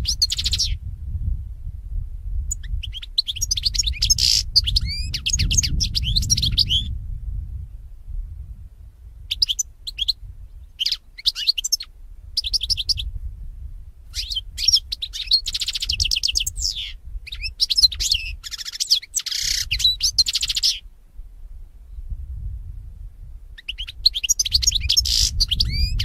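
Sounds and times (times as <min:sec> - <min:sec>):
bird twittering: 0:00.0 - 0:00.8, 0:02.5 - 0:06.9, 0:09.3 - 0:13.1, 0:14.2 - 0:20.8, 0:23.6 - 0:26.0
low rumble: 0:04.8 - 0:09.1.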